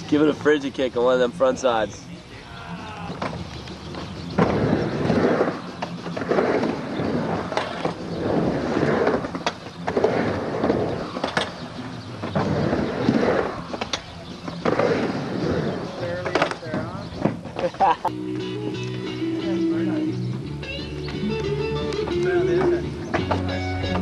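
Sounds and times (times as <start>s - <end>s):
skateboard clacks: 3.1s - 17.7s
skateboard wheels rolling on ramp: 3.1s - 17.8s.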